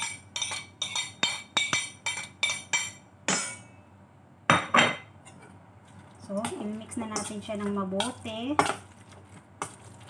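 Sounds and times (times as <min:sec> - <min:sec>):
spoon clinking on plate and bowl: 0:00.0 - 0:03.8.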